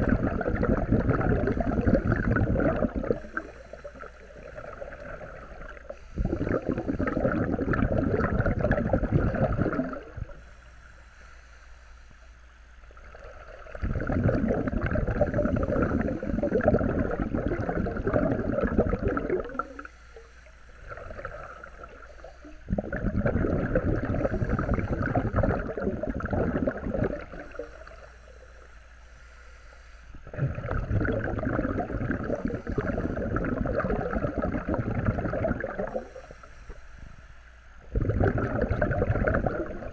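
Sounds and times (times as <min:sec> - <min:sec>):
bubbling regulator exhalations: 0:00.0 - 0:10.5, 0:12.8 - 0:28.7, 0:30.1 - 0:36.5, 0:37.8 - 0:39.9
hissing regulator inhalations: 0:02.9 - 0:07.5, 0:10.3 - 0:12.3, 0:27.4 - 0:30.3, 0:35.9 - 0:37.4.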